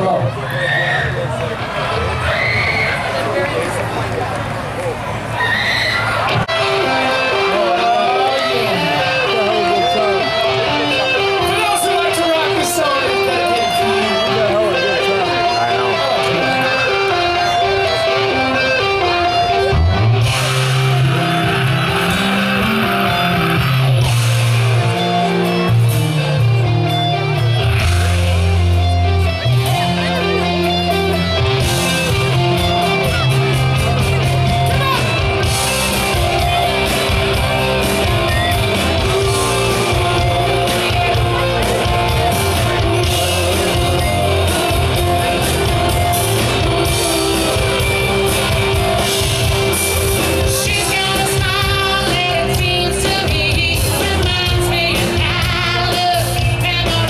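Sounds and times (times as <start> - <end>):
guitar: 0.0 - 57.0
bass line: 15.3 - 57.0
steady drum beat: 27.7 - 57.0.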